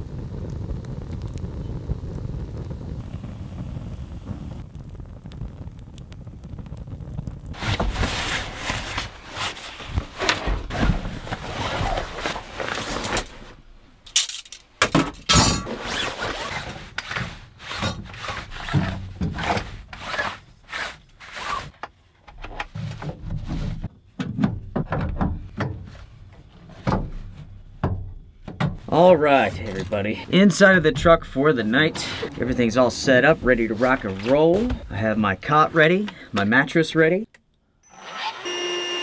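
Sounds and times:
objects rustling: 0:07.6 - 0:20.4
objects knocking: 0:22.3 - 0:26.1.

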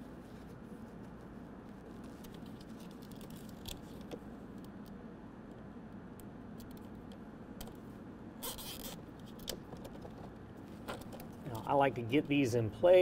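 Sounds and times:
steady low hum: 0:00.0 - 0:13.0
plastic wiring clicking and rustling: 0:02.0 - 0:04.7, 0:08.6 - 0:11.6.

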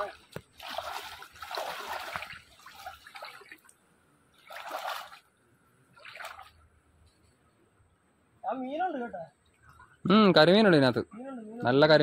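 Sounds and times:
water splashing: 0:00.0 - 0:06.7.

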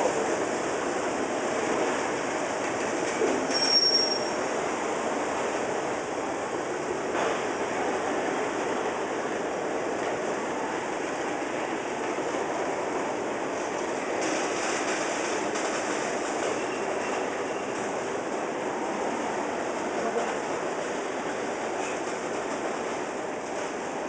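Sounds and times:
freight train wheels rumbling: 0:00.0 - 0:24.0.

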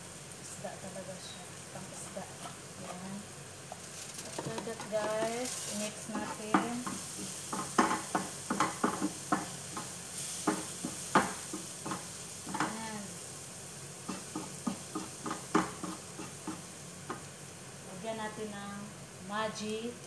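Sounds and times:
food sizzling in a pan: 0:00.0 - 0:20.0
spatula scraping a frying pan: 0:05.4 - 0:12.8, 0:14.1 - 0:16.7
spatula knocking against pan: 0:06.1 - 0:12.8, 0:14.1 - 0:17.3.

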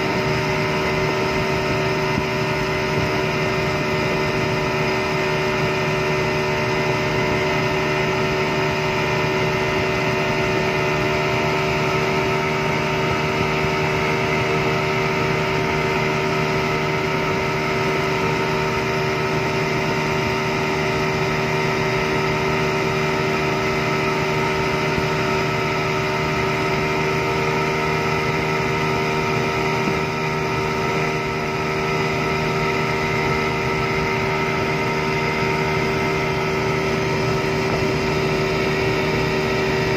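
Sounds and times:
boat wake and spray rushing: 0:00.0 - 0:39.9
outboard motor running: 0:00.0 - 0:39.9.

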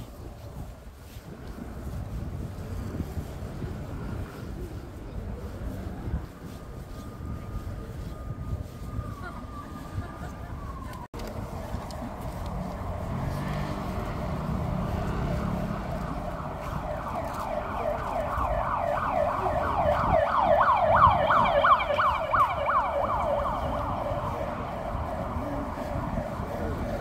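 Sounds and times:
siren yelping: 0:07.8 - 0:11.1, 0:14.9 - 0:26.9.

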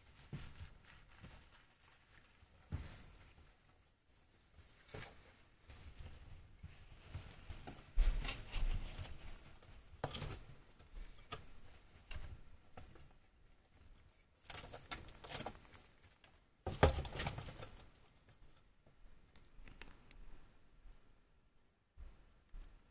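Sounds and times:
small animals scrabbling through hay: 0:00.0 - 0:16.0.

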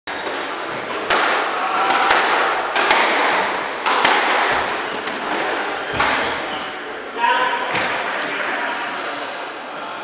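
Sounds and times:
squash ball cracks off walls: 0:00.3 - 0:04.7.

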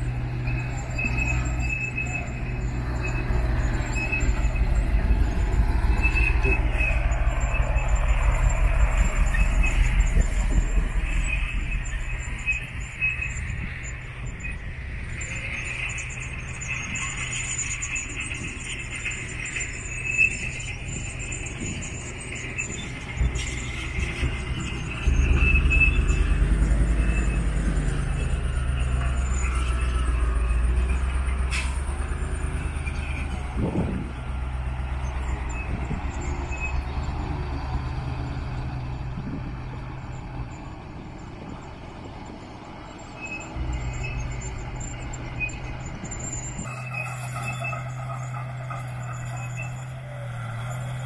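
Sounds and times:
truck diesel engine running: 0:00.0 - 0:15.2.

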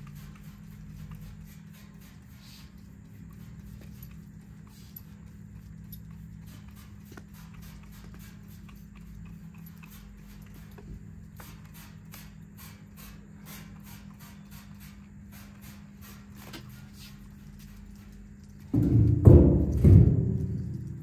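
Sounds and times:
spray bottle squirting: 0:11.4 - 0:16.9
low hum: 0:17.8 - 0:21.0.

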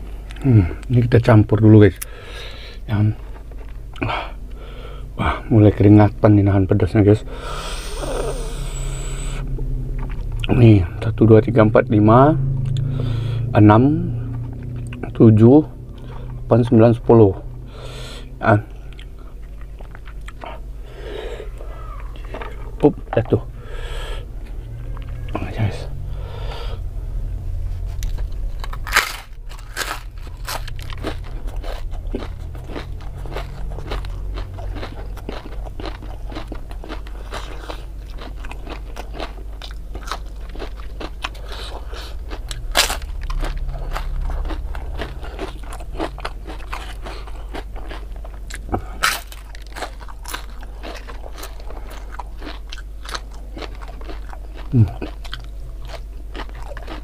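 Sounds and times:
crunchy chewing: 0:14.3 - 0:25.8, 0:27.7 - 0:57.0.

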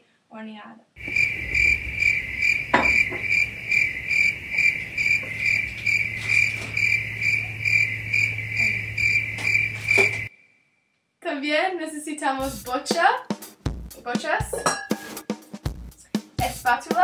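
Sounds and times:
crickets chirping: 0:01.0 - 0:10.9.

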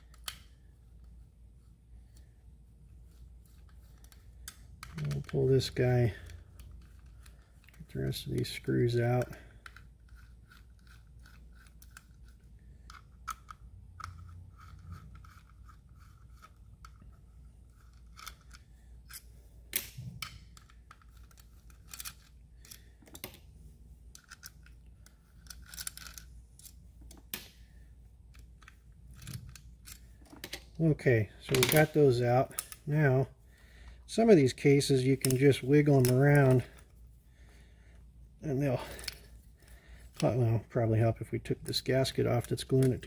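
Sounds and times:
small metal parts clinking: 0:03.9 - 0:23.4, 0:24.1 - 0:27.4.

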